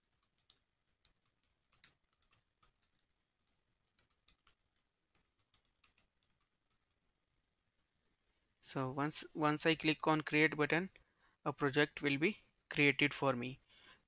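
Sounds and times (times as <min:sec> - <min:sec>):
typing on computer keyboard: 0:00.0 - 0:07.2.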